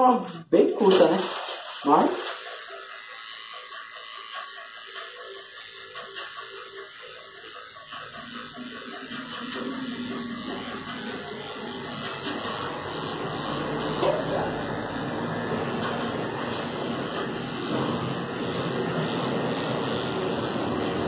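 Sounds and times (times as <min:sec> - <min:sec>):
electric clipper buzzing: 0:00.8 - 0:21.0.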